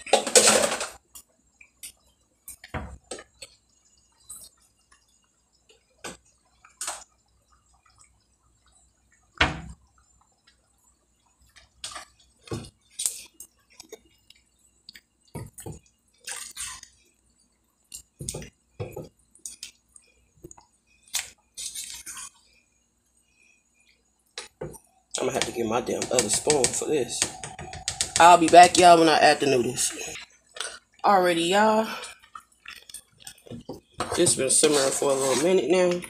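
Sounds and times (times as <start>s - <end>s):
sauce simmering with wet pops: 1.0s - 29.1s
spoon stirring sauce: 25.2s - 30.3s, 32.2s - 36.0s.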